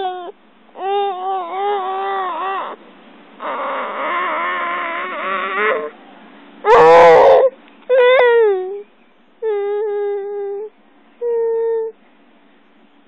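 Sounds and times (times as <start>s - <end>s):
baby high-pitched calls: 0.0s - 2.8s, 3.4s - 5.9s, 6.6s - 8.8s, 9.4s - 12.0s.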